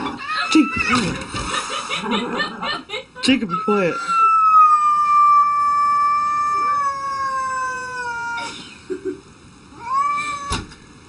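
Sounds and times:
cat yowling: 0.0s - 1.2s, 3.5s - 8.6s, 9.7s - 10.7s.

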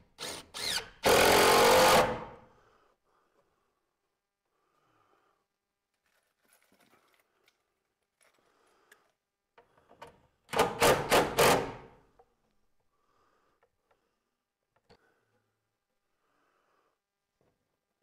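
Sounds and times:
cordless drill bursts: 0.2s - 2.3s
handling sounds: 5.9s - 9.0s.

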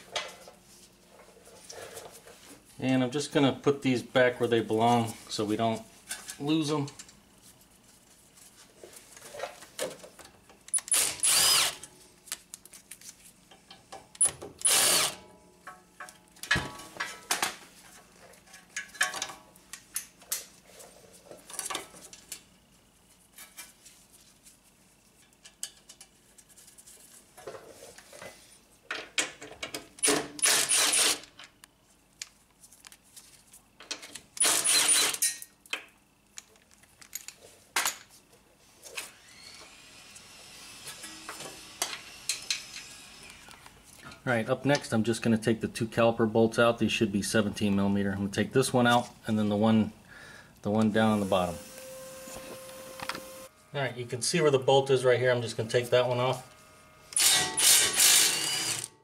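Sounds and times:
power tool spinning bolts: 10.7s - 11.9s, 14.2s - 15.2s, 30.0s - 31.3s, 34.4s - 35.4s, 57.1s - 59.0s
bolts and tool clinking: 36.4s - 38.1s.

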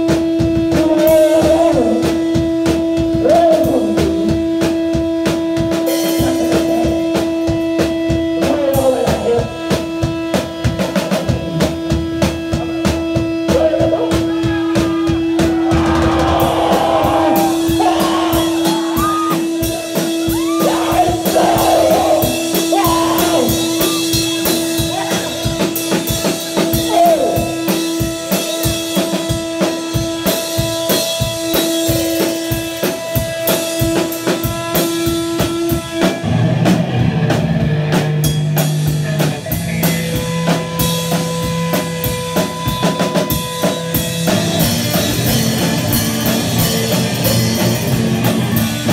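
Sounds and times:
punk rock band playing live: 0.0s - 48.9s
person shouting vocals: 13.5s - 19.5s, 20.2s - 25.5s, 26.8s - 27.6s.

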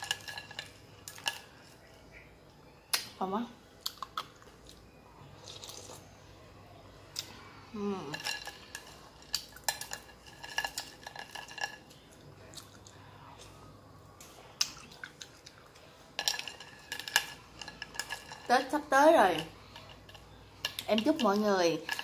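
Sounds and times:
spoon clinking against glass bowl: 16.2s - 22.0s.

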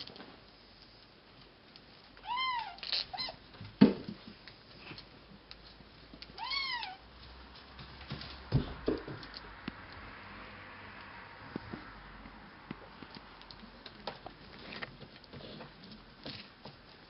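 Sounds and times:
kitten meowing: 2.2s - 3.4s, 6.4s - 7.0s
knocks and thumps: 3.6s - 4.4s, 7.8s - 9.4s.

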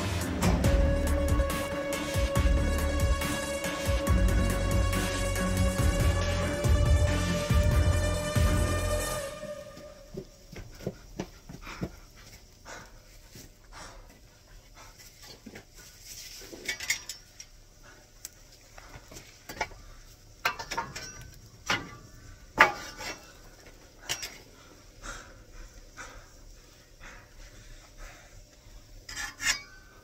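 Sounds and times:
metal tool knocking and scraping: 29.1s - 29.9s.

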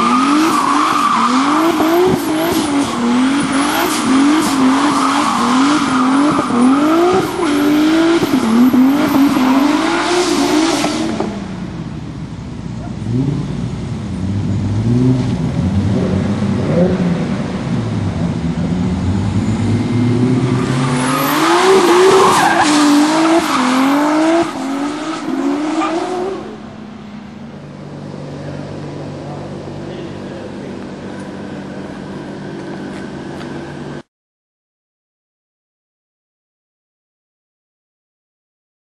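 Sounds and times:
car engine revving: 0.0s - 34.0s
car engine idling: 26.4s - 33.9s.

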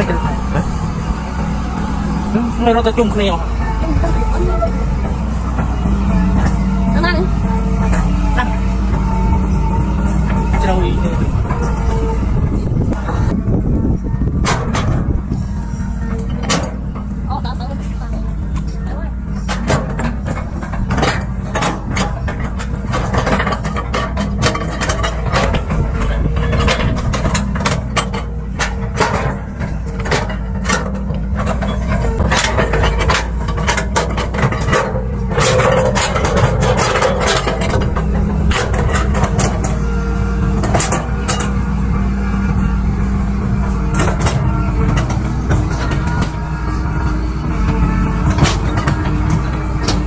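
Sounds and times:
excavator diesel engine running: 0.0s - 50.0s
sharp knocks and clanks: 14.2s - 50.0s.

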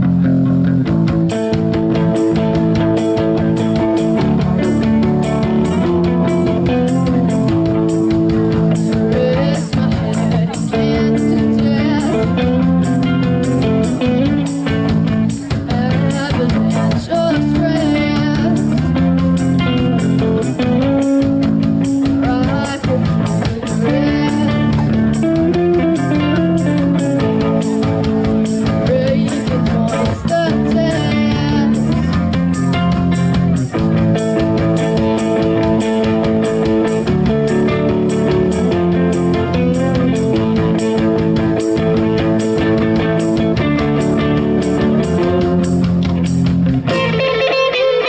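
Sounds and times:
bass guitar: 0.0s - 48.0s
distorted electric guitars: 0.0s - 48.0s
drum kit with cymbals: 0.8s - 47.7s.

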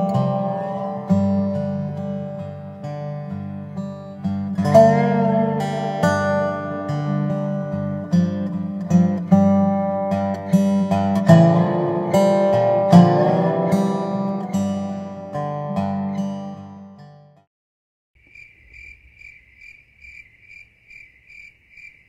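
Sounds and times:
acoustic guitar music: 0.0s - 17.5s.

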